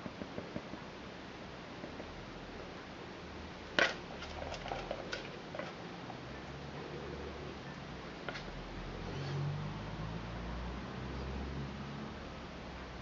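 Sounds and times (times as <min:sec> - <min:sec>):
spatula scraping plastic bowl: 0:08.3 - 0:09.4.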